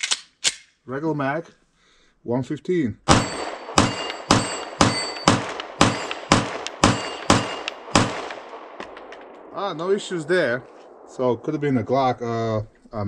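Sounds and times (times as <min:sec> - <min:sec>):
bullet ringing on steel target: 0:03.1 - 0:09.1
pistol shots: 0:03.1 - 0:11.1.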